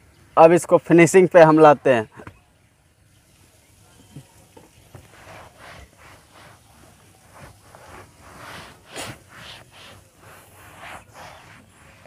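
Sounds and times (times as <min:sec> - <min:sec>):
cloth rubbing on plastic panel: 0:04.7 - 0:12.0.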